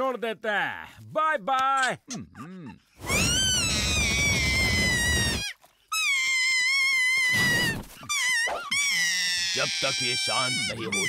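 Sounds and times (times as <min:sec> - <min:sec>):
cartoon baby wailing: 0:03.0 - 0:11.0.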